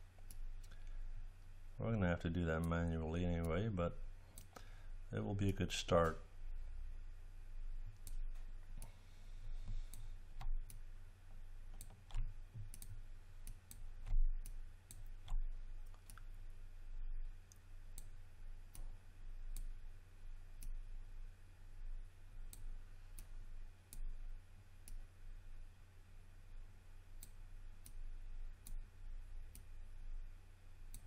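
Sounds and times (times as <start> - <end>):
steady low hum: 0.0 - 31.0
computer mouse clicks: 4.4 - 4.7, 9.7 - 10.8, 11.7 - 16.3, 19.5 - 19.8, 27.2 - 28.0.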